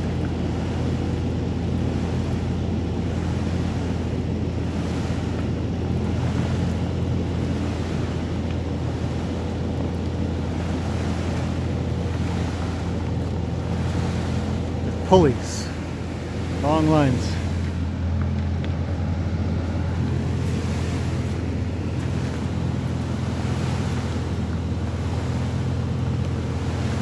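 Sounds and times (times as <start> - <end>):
large machine engine droning: 0.0 - 27.0
even rushing noise: 10.3 - 27.0.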